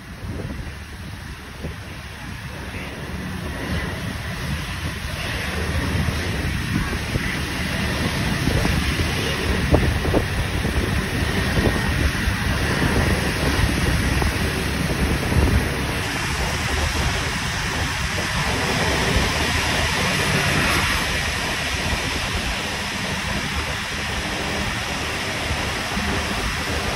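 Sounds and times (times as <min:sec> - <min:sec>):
traffic rumble: 0:00.0 - 0:26.9
wind buffeting microphone: 0:00.0 - 0:26.9.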